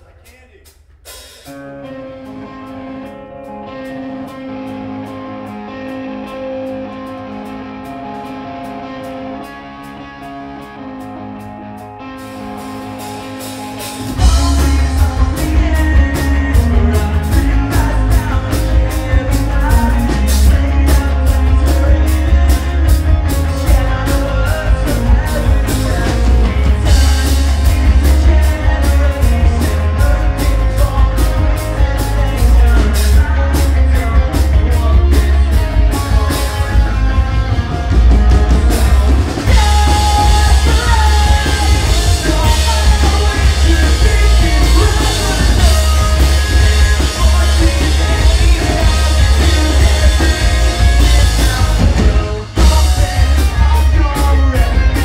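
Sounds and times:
live rock band playing: 0:00.0 - 0:55.0
electric guitar: 0:01.2 - 0:55.0
person singing: 0:12.6 - 0:55.0.

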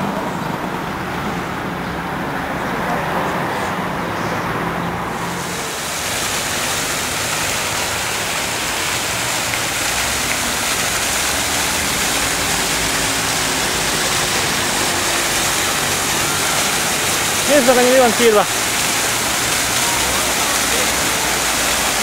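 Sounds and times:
fountain water splashing: 0:05.1 - 0:22.0.

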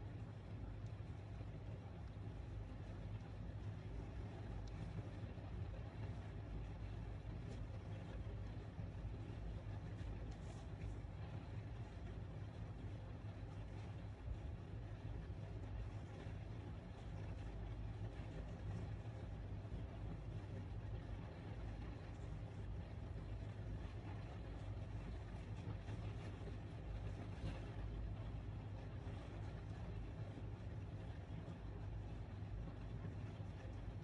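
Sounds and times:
low background rumble: 0:00.0 - 0:34.0.

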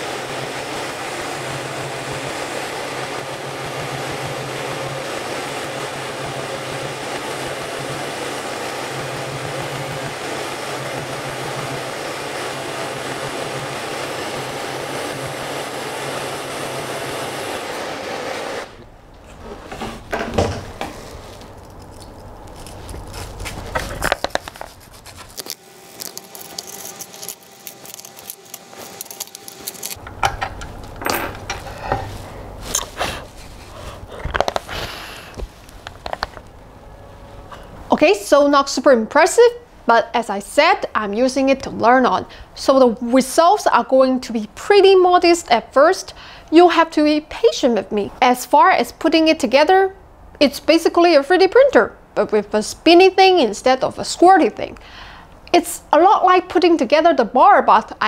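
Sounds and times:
knocks and clinks of clamps: 0:30.0 - 0:32.1.

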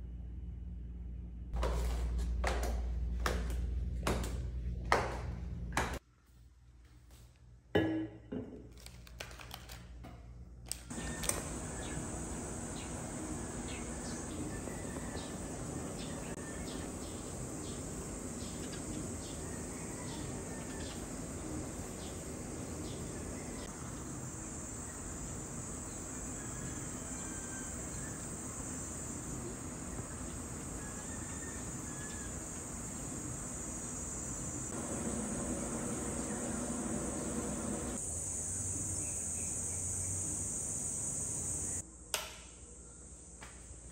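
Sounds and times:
insects buzzing drone: 0:10.9 - 0:42.0.

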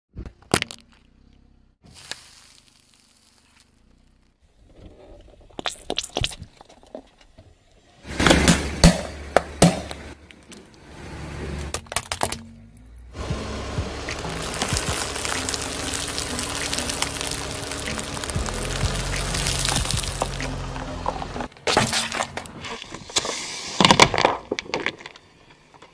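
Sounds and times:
tyre crushing small objects: 0:00.2 - 0:07.4, 0:11.7 - 0:12.6, 0:14.1 - 0:25.9.

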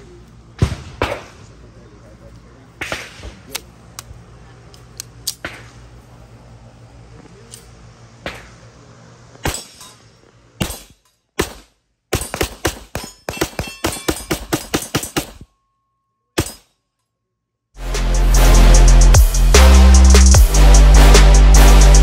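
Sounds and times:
steady hum: 0:00.0 - 0:12.1
pistol shots: 0:00.6 - 0:01.5, 0:02.8 - 0:03.6, 0:10.6 - 0:15.4.

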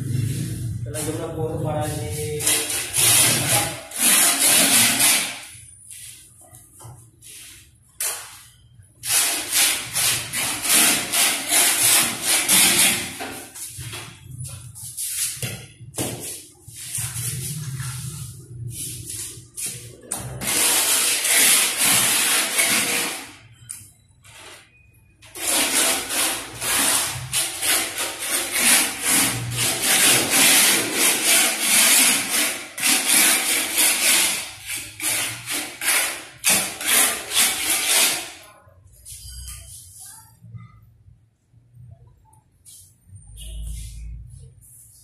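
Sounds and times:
hand tool scraping rough surface: 0:02.2 - 0:05.5, 0:19.2 - 0:23.3, 0:25.4 - 0:38.4.

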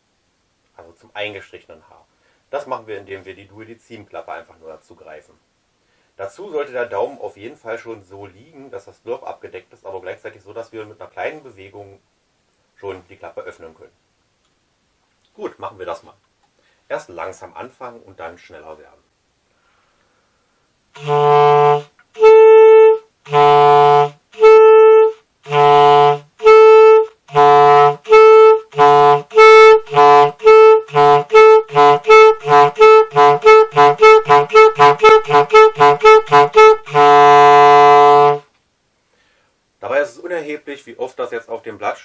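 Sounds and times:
clarinet playing alternating notes: 0:21.0 - 0:38.5.

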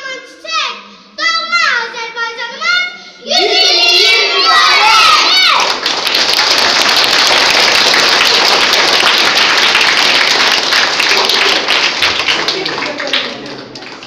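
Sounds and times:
child speaking: 0:00.0 - 0:05.7
crowd applause: 0:04.9 - 0:14.0.

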